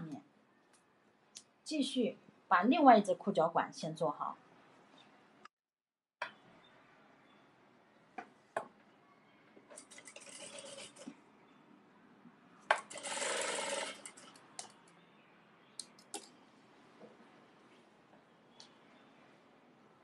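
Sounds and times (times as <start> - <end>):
sewing machine stitching: 9.8 - 11.1, 12.8 - 14.3.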